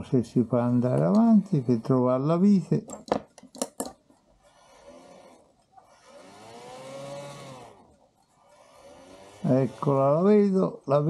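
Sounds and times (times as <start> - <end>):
clock gears whirring: 4.4 - 10.3.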